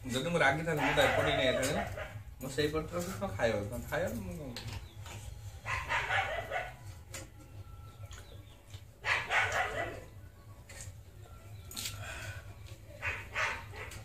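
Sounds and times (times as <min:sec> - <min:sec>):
animal calls: 0:00.7 - 0:02.2, 0:05.6 - 0:06.8.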